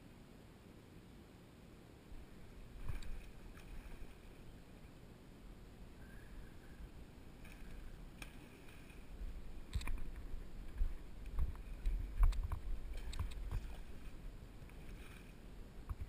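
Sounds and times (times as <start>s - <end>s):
wind rumble on microphone: 9.0s - 16.0s.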